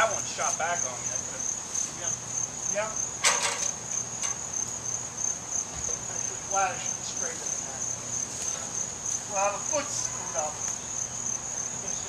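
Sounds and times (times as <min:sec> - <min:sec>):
insects chirping trill: 0:00.0 - 0:12.0
clatter of knocks: 0:03.2 - 0:04.4.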